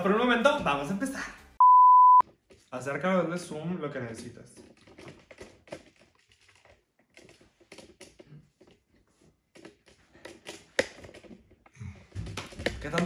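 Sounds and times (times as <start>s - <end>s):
makeup containers clicking and tapping: 9.5s - 13.0s.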